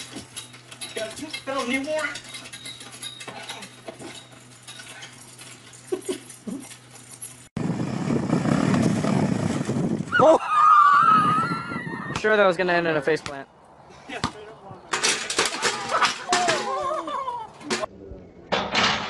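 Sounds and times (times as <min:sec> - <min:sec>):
quad bike engine running: 0:07.6 - 0:10.1.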